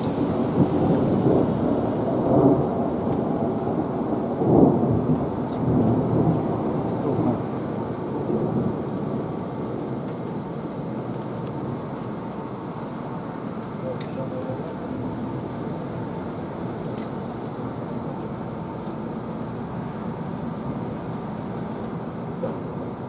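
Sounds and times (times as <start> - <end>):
thunder rolling: 0.0 - 18.2
rain falling: 0.0 - 23.0.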